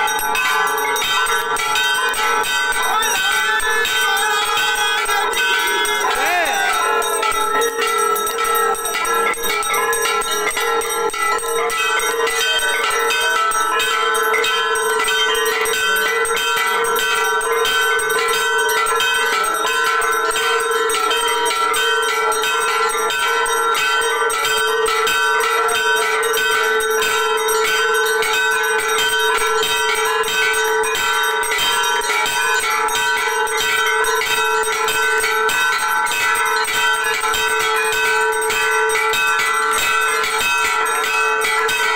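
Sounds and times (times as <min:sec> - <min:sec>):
bells ringing rapidly: 0:00.0 - 0:41.9.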